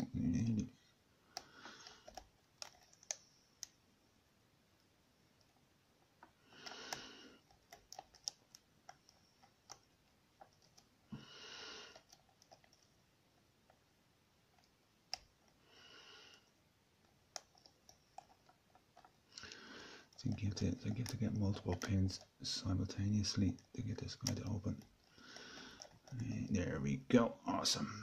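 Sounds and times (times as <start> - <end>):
short breaths: 1.3 - 2.2, 6.4 - 7.4, 11.1 - 12.1, 19.3 - 20.2, 25.1 - 26.0.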